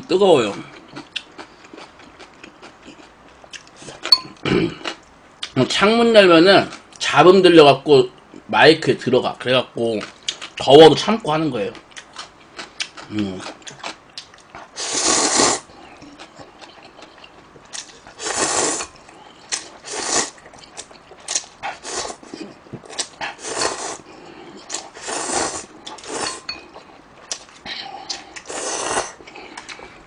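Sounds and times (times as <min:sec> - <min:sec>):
chewing and mouth clicks: 0:00.8 - 0:05.5, 0:16.0 - 0:18.1, 0:25.8 - 0:28.5
person slurping noodles: 0:14.8 - 0:15.7, 0:18.1 - 0:18.9, 0:19.8 - 0:20.4, 0:21.6 - 0:22.5, 0:23.2 - 0:26.5, 0:27.9 - 0:29.2.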